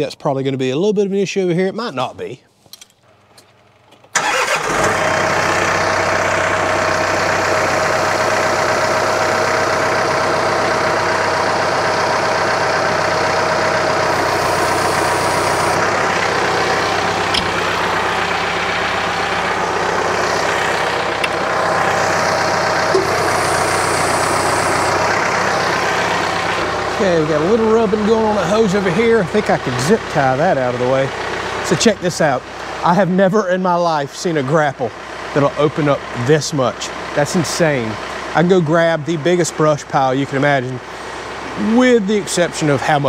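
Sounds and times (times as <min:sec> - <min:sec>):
tractor diesel engine running: 0:03.1 - 0:43.0
steady whine: 0:11.9 - 0:30.3.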